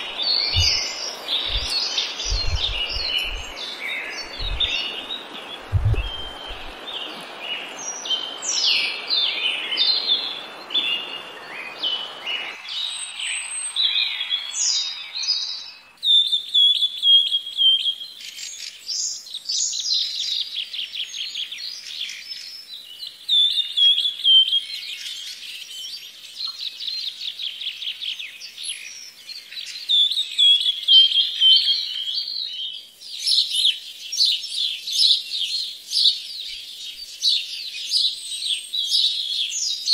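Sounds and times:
steady rushing noise: 0.0 - 6.9
songbirds chirping and trilling: 0.0 - 39.9.

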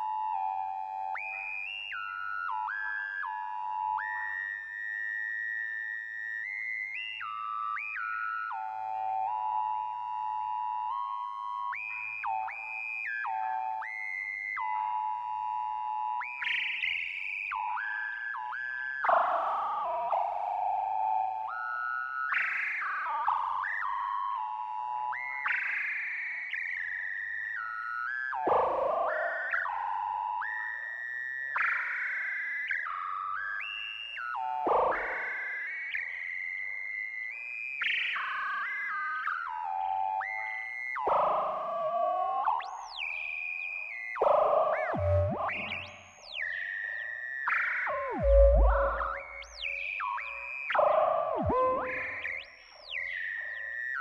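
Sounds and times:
gliding synthesizer melody: 45.0 - 46.0, 48.0 - 49.9, 51.4 - 52.3.

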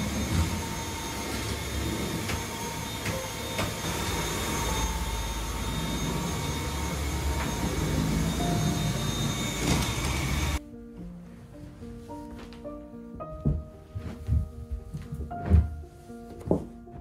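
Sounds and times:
stick vacuum cleaner running: 0.0 - 10.6.

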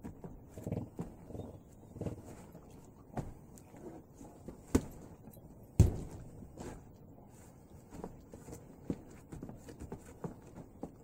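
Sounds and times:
arms knocking wooden dummy: 5.8 - 6.3.

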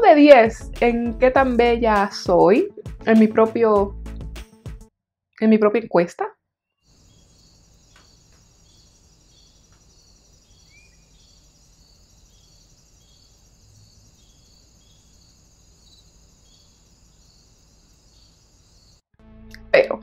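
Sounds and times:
crickets chirping: 6.9 - 19.0.

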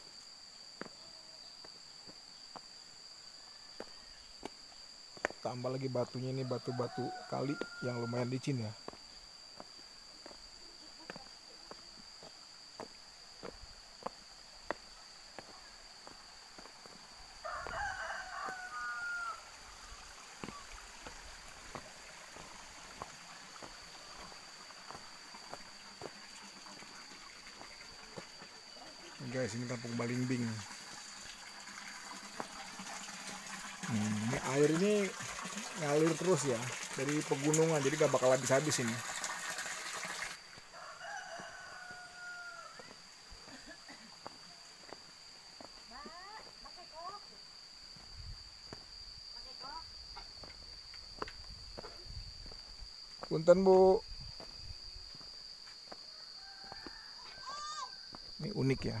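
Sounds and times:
footsteps on stone path: 0.7 - 1.0, 1.6 - 2.8, 3.7 - 5.4, 8.8 - 18.9, 20.4 - 28.6, 40.4 - 46.7, 47.8 - 49.3, 50.0 - 53.4, 54.0 - 57.4, 58.1 - 58.4
rooster crowing: 6.2 - 8.7, 17.4 - 20.7, 40.6 - 43.0, 56.0 - 58.2.

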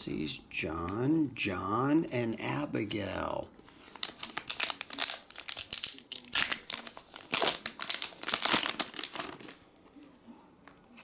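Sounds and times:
foil wrapper crinkling: 3.7 - 9.6.

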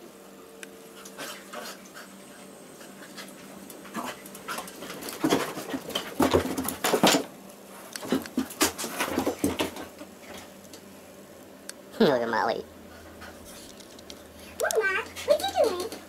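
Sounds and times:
dogs scuffling: 0.9 - 10.6.

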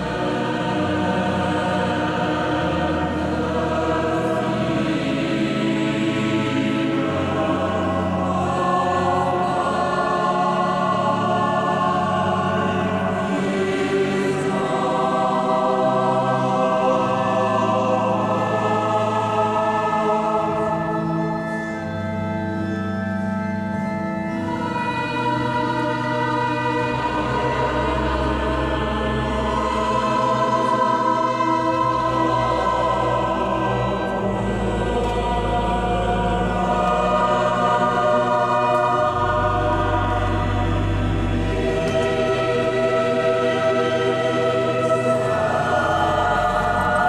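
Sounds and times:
choir singing sustained chords: 0.0 - 47.0.

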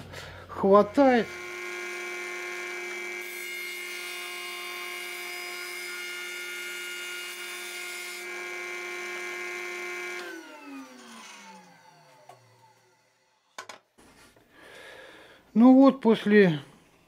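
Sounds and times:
cutter cutting wooden board: 0.7 - 13.5.

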